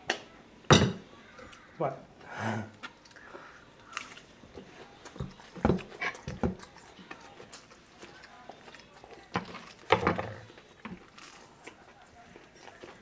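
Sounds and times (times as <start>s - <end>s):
chewing and mouth smacking: 2.8s - 13.0s.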